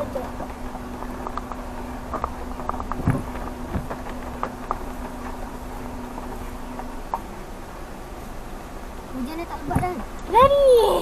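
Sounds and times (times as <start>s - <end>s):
car clicks and knocks over bumps: 0.0s - 7.5s, 9.6s - 10.7s
car engine hum: 0.0s - 11.0s
heavy thump: 2.8s - 5.6s.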